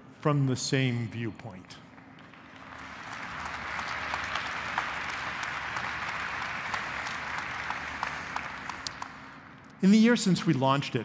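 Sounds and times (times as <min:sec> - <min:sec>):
audience applauding: 0:02.0 - 0:09.5.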